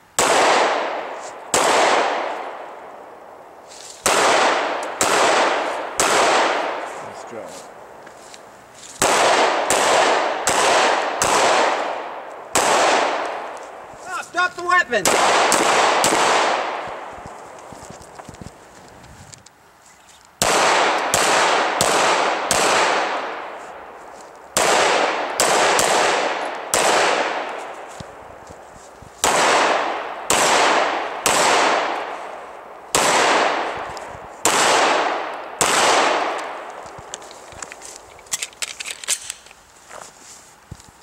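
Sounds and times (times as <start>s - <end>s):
pistol shots echoing: 0.2s - 3.1s, 4.0s - 6.9s, 9.0s - 13.6s, 14.7s - 17.1s, 20.4s - 23.6s, 24.6s - 27.6s, 29.2s - 32.2s, 32.9s - 33.8s, 34.4s - 36.7s
light clicks of pistol handling: 36.4s - 39.6s.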